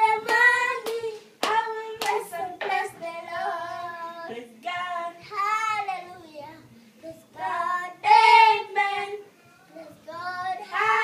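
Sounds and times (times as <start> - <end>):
hand claps: 0.2 - 2.8.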